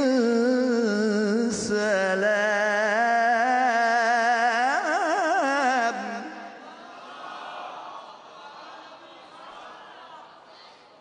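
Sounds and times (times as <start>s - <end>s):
man chanting melodically: 0.0s - 6.6s.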